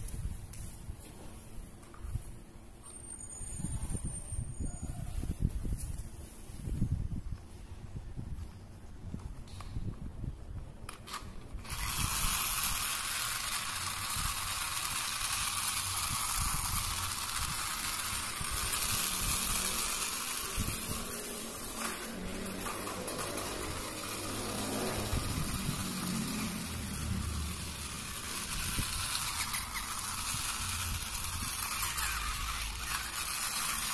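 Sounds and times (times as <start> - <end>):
toy motor whirring rattle: 10.9 - 33.9.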